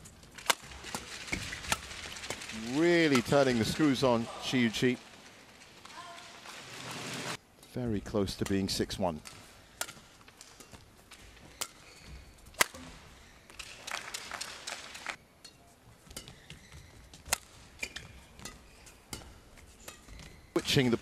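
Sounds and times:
hazy hall noise: 0.0s - 21.0s
badminton racket hitting shuttlecock: 8.4s - 13.9s, 15.4s - 21.0s.

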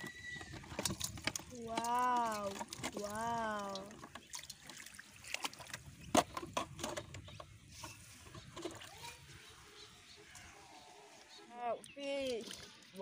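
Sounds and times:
fish slapping in metal bowl: 0.0s - 7.2s.

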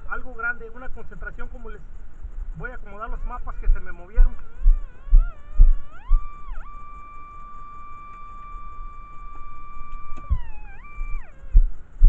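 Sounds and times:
metal detector tone: 2.6s - 12.0s.

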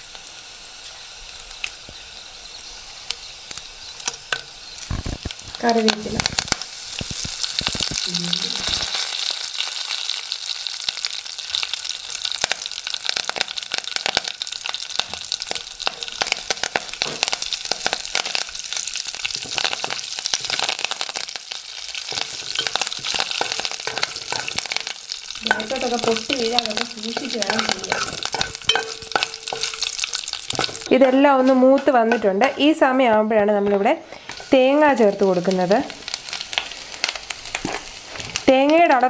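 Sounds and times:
spices sizzling in hot oil: 0.0s - 39.0s
spoon stirring in a pan: 21.9s - 35.1s.

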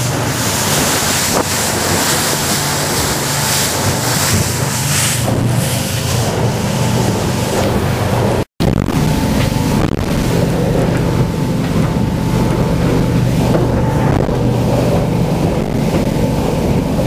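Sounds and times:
motorboat engine drone: 0.0s - 17.0s
rushing water and spray: 0.0s - 17.0s
wind buffeting microphone: 0.0s - 17.0s.

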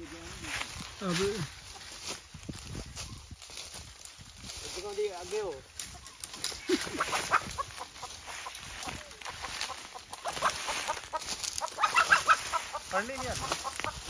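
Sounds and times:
footsteps on dry leaves: 0.0s - 14.0s
chicken squawking and clucking: 6.7s - 14.0s.

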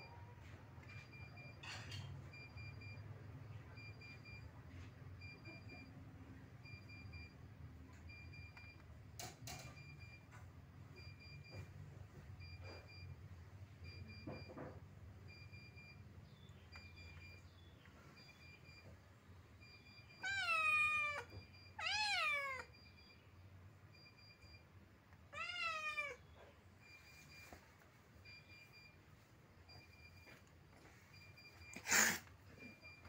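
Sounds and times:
faint high beep: 19.6s - 24.7s.

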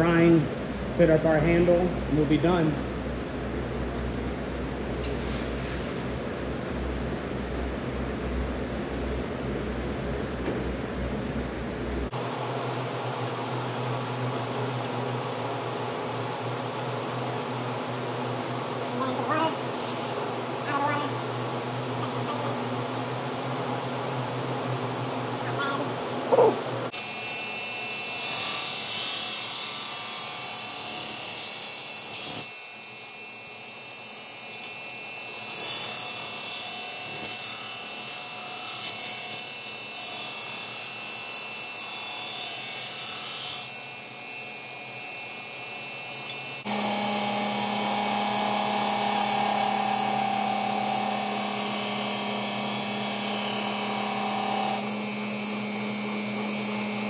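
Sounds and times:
belt grinder low hum: 34.3s - 57.0s
belt grinder whining: 43.2s - 57.0s.

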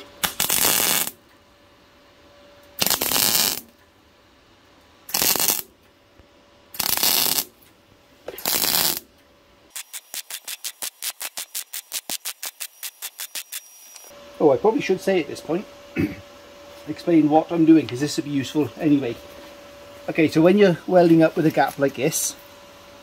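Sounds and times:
welding arc crackle: 0.0s - 1.3s, 2.7s - 3.8s, 5.0s - 5.8s, 6.7s - 9.1s, 9.7s - 14.1s.

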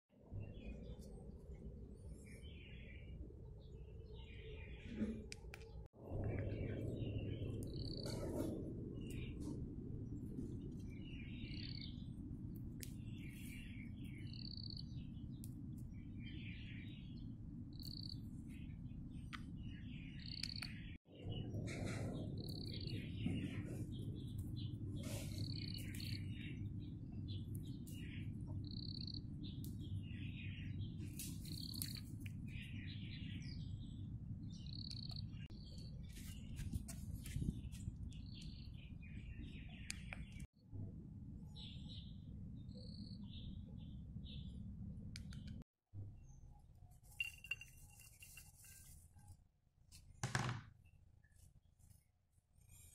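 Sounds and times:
low background rumble: 0.3s - 31.2s
twittering bird chirps: 0.3s - 40.5s.

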